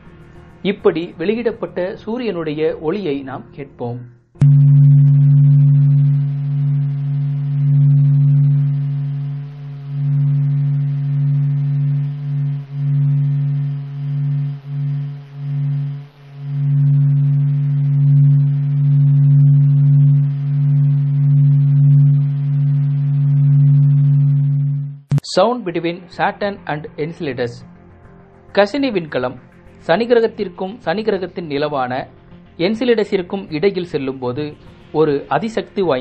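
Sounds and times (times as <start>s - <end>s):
steady low hum: 4.4s - 25.2s.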